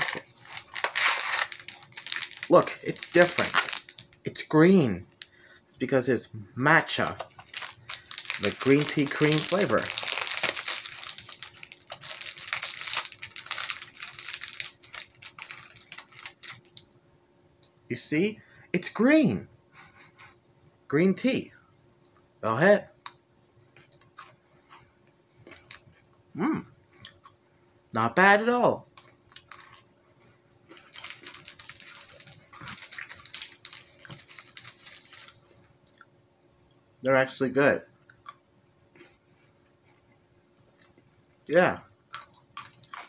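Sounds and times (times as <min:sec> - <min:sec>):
plastic pouch crinkling: 0:00.0 - 0:04.3, 0:07.2 - 0:16.9, 0:29.1 - 0:29.9, 0:30.7 - 0:35.6, 0:42.2 - 0:43.0
chewing crunchy biscuit: 0:07.5 - 0:16.8, 0:27.0 - 0:27.4, 0:28.9 - 0:30.0, 0:30.7 - 0:36.1, 0:42.0 - 0:43.0.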